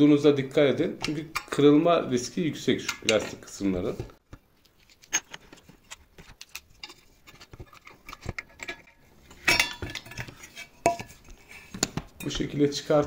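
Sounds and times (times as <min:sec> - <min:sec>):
metal tools clicking and tapping: 0:01.0 - 0:01.6, 0:07.6 - 0:11.2.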